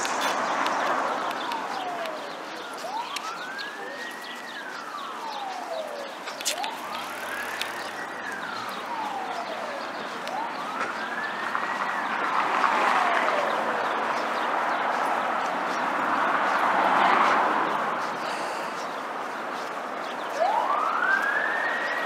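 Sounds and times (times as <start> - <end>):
siren wailing: 0.0 - 15.4, 20.2 - 22.0
street noise: 0.0 - 22.0.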